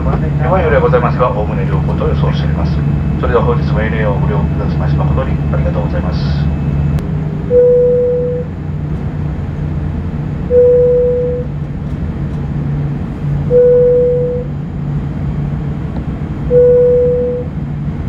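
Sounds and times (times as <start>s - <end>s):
cabin hum: 0.0s - 18.0s
airliner cabin chime: 7.5s - 8.6s, 10.4s - 11.6s, 13.4s - 14.7s, 16.4s - 17.7s.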